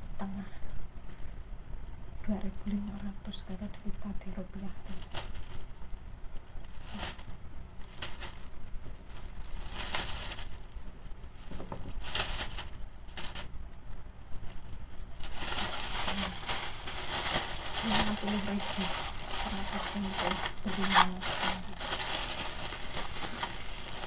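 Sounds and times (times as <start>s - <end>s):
plastic bag crinkling: 4.8s - 24.0s.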